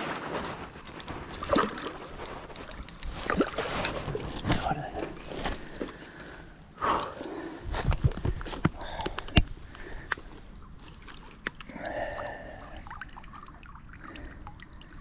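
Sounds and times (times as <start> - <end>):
water dripping and trickling: 8.8 - 15.0.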